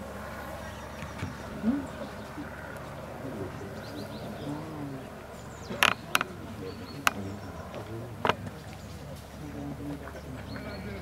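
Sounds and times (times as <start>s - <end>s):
murmur of distant voices: 0.0s - 11.0s
sharp clicks or knocks: 5.7s - 6.3s.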